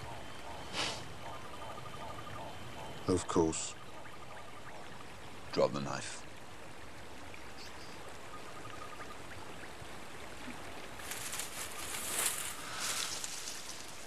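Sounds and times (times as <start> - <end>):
steady soft hiss: 5.0 - 14.0
rustling: 11.0 - 14.0.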